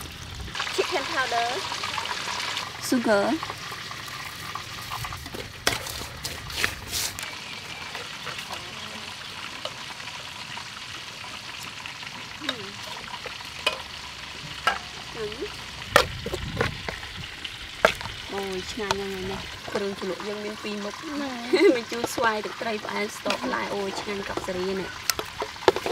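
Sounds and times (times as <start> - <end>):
chopsticks stirring in metal bowl: 4.2 - 9.0, 23.2 - 25.9.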